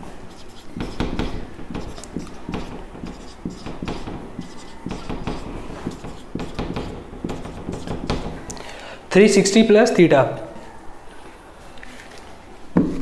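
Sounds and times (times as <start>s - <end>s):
marker pen scratching on whiteboard: 0.0s - 8.5s.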